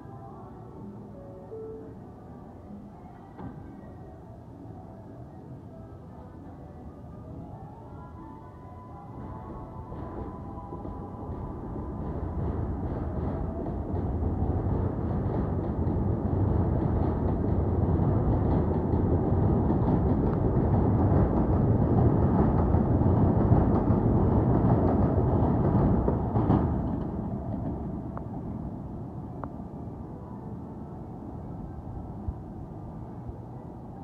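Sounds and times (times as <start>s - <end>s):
train wheels rumbling on rails: 9.2s - 33.1s
loud train clack: 11.0s - 28.0s.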